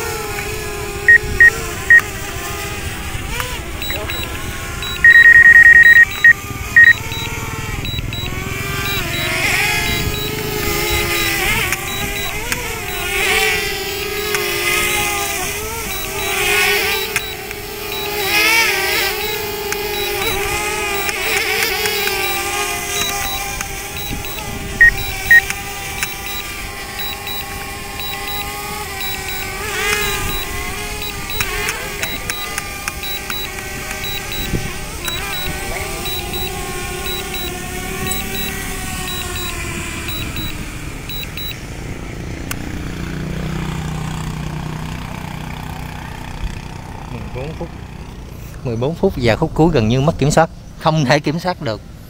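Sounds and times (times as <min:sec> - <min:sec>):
drone propellers whining: 0:00.0 - 0:42.7
alarm beeping rapidly: 0:01.1 - 0:02.0, 0:03.8 - 0:13.2, 0:14.2 - 0:15.3, 0:15.9 - 0:41.6
short beeps: 0:01.1 - 0:02.0, 0:03.8 - 0:13.1, 0:14.2 - 0:15.3, 0:15.9 - 0:41.6
control stick clicks: 0:17.0 - 0:18.4, 0:19.2 - 0:22.4, 0:23.0 - 0:26.4, 0:28.0 - 0:35.5.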